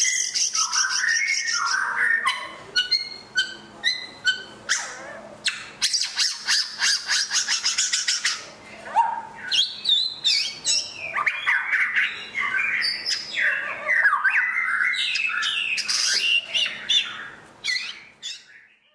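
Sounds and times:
bird singing whistled song: 0.0 - 4.9, 9.4 - 18.9.

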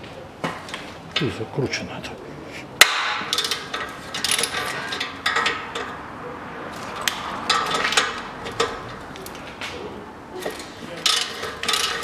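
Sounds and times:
ratchet pawl clicking: 11.0 - 12.0.

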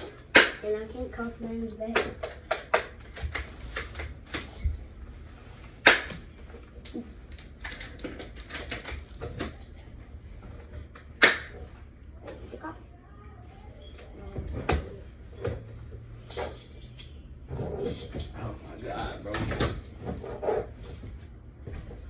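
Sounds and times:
bb guns clicking and rattling: 5.8 - 9.6.

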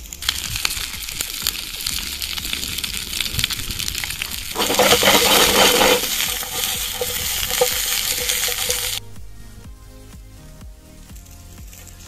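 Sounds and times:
food sizzling in oil: 0.0 - 9.0.

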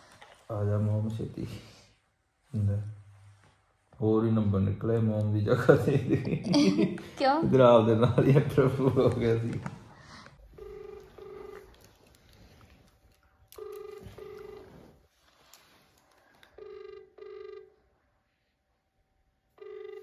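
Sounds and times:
telephone ringback tone: 10.5 - 11.7, 13.6 - 15.0, 16.6 - 17.8, 19.6 - 20.0.

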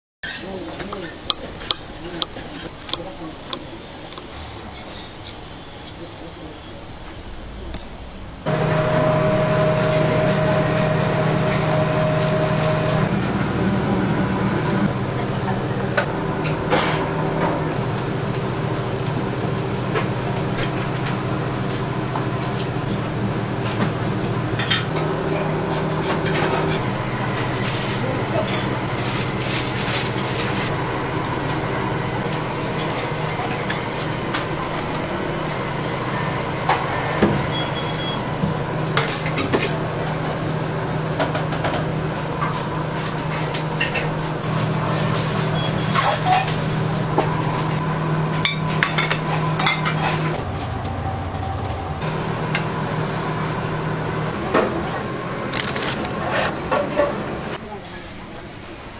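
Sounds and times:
low hum of kitchen machinery: 0.2 - 58.9
utensils and dishes clinking: 48.4 - 50.5.

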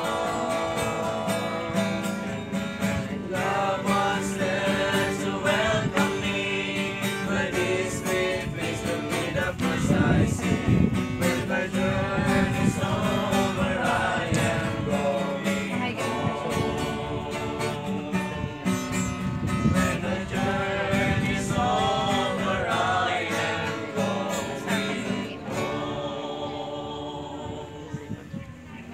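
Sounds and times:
group of men singing: 0.0 - 28.2
strummed acoustic guitar: 0.0 - 28.9.

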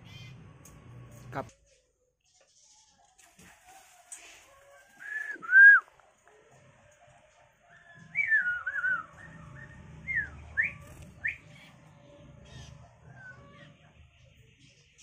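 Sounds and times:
person whistling sliding notes: 5.0 - 5.8.

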